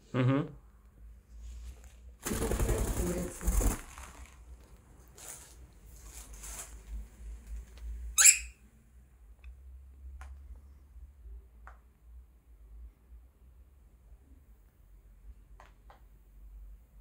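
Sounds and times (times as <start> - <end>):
cockatiel chirping: 8.2 - 8.6.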